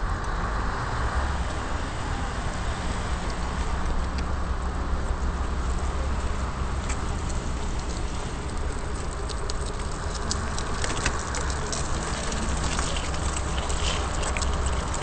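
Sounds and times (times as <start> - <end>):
tyres rolling on wet pavement: 0.0 - 15.0
wind buffeting microphone: 0.0 - 15.0
small clicks and crackles: 5.1 - 15.0.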